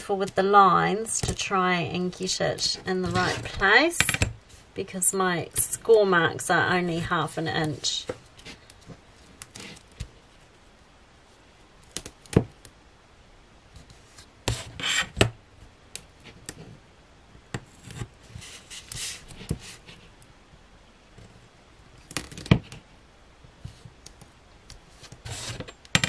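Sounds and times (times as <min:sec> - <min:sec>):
tape rustling rubs: 0:02.6 - 0:03.7, 0:13.8 - 0:15.2, 0:17.7 - 0:20.2, 0:24.8 - 0:25.7.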